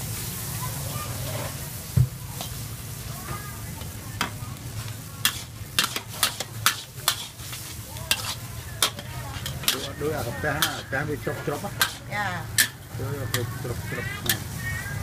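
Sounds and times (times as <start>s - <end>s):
food sizzling in a wok: 0.0s - 15.0s
metal ladle scraping wok: 0.8s - 1.8s, 4.2s - 15.0s.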